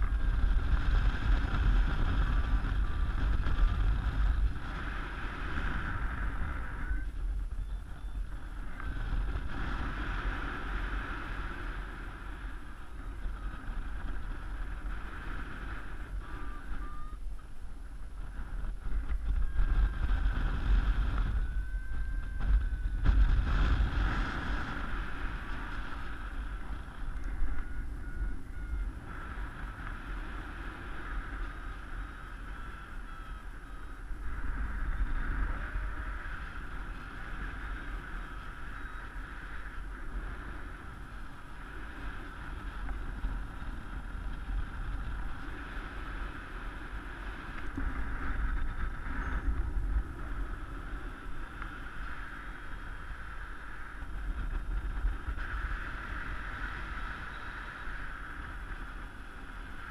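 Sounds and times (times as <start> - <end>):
deep rumble: 0.0 - 59.9
wind buffeting microphone: 0.0 - 59.9
faint short beeps: 6.5 - 8.4, 16.1 - 17.5, 27.0 - 29.4.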